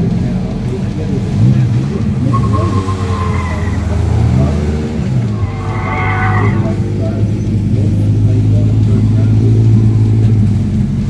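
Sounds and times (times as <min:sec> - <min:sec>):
low engine drone: 0:00.0 - 0:11.0
tyres squealing: 0:00.0 - 0:11.0.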